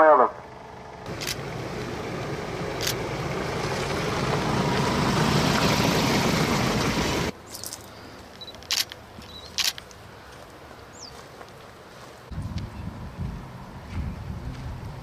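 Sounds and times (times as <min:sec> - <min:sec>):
truck driving on gravel: 0:01.0 - 0:15.0
sharp clicks: 0:08.4 - 0:10.0.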